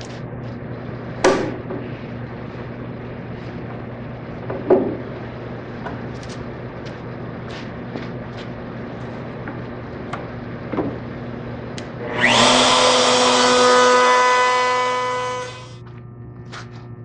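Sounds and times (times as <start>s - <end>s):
wood router whining: 12.0s - 15.8s.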